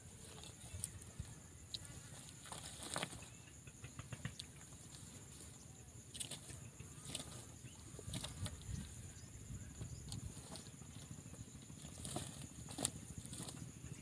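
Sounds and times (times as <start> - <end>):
dry grass rustling: 0.0 - 14.0
steady high-pitched hiss: 0.0 - 14.0.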